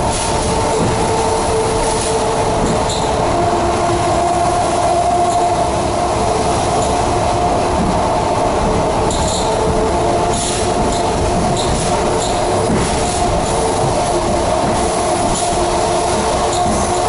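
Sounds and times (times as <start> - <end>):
train running rumble: 0.0 - 17.0.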